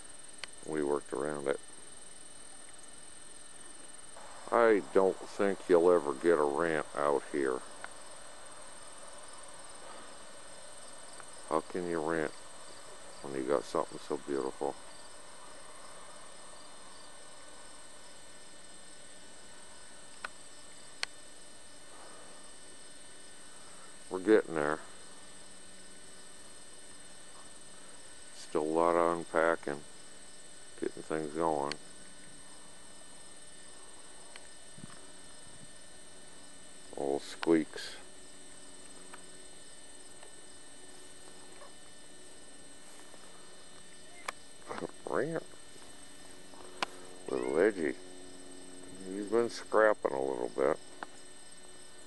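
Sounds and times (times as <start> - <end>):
steady hum: 0.0 - 52.0
faint ticks: 0.4 - 0.6, 20.1 - 21.2, 31.6 - 32.4.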